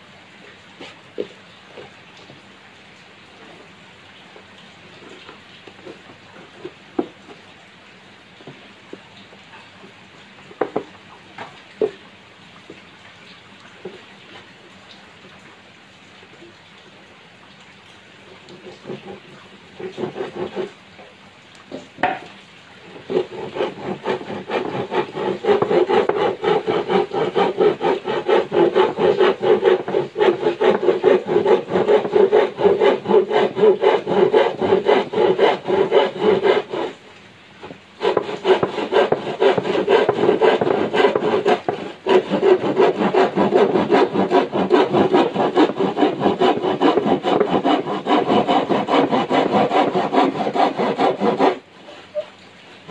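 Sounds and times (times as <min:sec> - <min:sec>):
hand saw cutting wood: 0:18.4 - 0:20.8, 0:22.8 - 0:37.0, 0:37.6 - 0:52.3
knock: 0:22.0 - 0:22.2.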